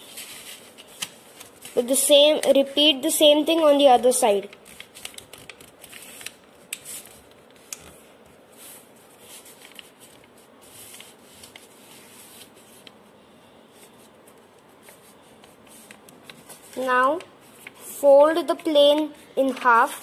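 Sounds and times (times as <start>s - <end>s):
paper rustling and sliding: 0.0s - 2.6s, 4.3s - 13.0s, 13.7s - 18.8s
paper creasing clicks: 4.4s - 7.9s.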